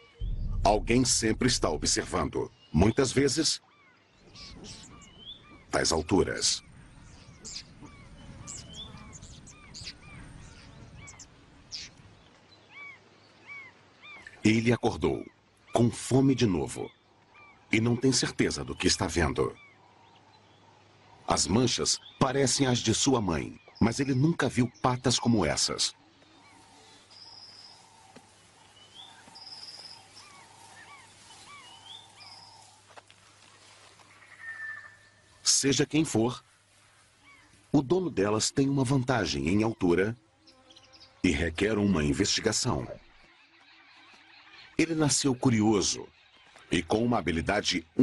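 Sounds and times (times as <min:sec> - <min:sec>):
birds calling: 0:00.0 - 0:48.0
bird arching chirps: 0:26.2 - 0:35.5.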